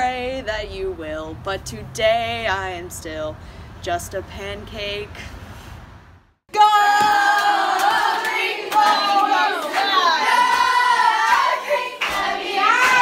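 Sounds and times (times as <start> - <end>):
women singing in unison: 6.6 - 13.0.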